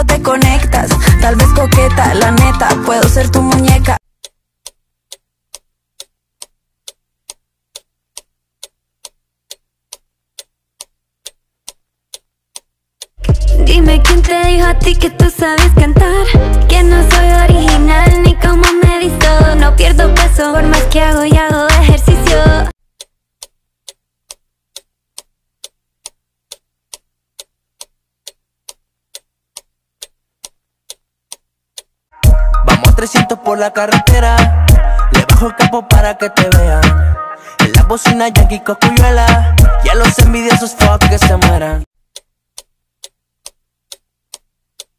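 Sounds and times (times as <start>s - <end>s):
clock ticking: 0.1s - 13.5s, 23.0s - 36.7s, 37.6s - 39.4s, 40.0s - 44.9s.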